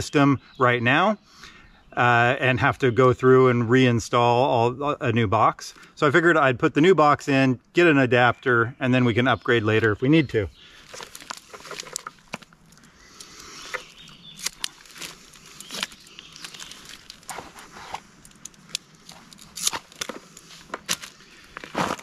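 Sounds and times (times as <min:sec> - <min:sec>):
extension cord handling clicks and rustling: 0:10.8 - 0:12.8.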